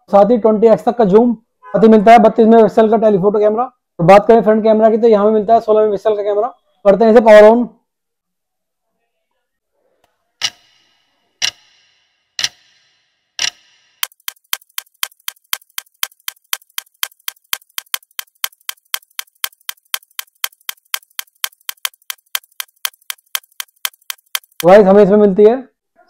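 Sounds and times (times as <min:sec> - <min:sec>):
clock ticking: 0:10.4 - 0:24.9.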